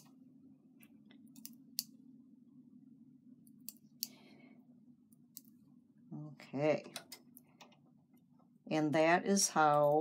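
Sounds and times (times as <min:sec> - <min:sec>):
faint low hum: 0:00.0 - 0:10.0.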